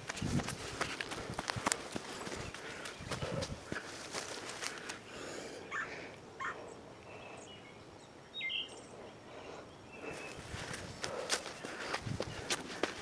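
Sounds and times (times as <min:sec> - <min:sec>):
footsteps on dirt trail: 0:00.0 - 0:05.5, 0:10.0 - 0:13.0.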